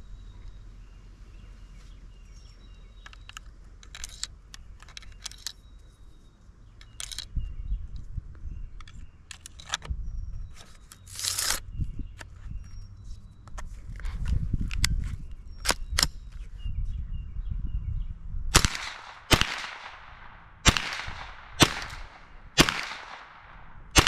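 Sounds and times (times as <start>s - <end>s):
rifle clicks and knocks: 3.0s - 5.7s, 6.8s - 7.4s, 8.8s - 9.9s.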